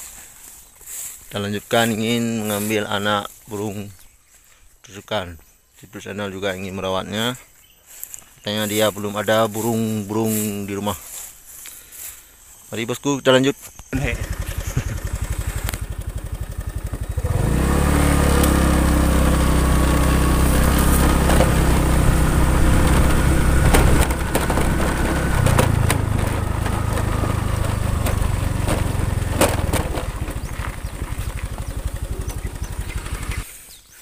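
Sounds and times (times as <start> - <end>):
small motorcycle engine: 14.0 - 33.5.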